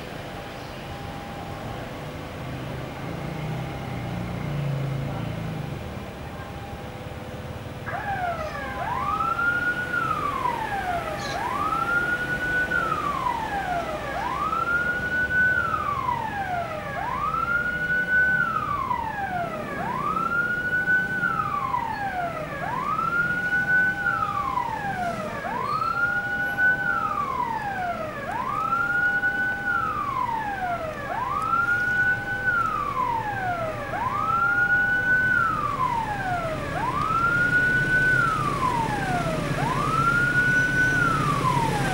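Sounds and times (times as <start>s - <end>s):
train rumble: 0.0s - 14.7s
electronic siren wailing: 7.8s - 41.9s.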